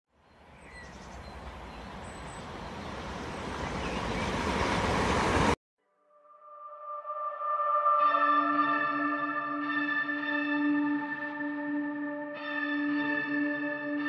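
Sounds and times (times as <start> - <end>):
soft ambient guitar music: 6.2 - 14.0.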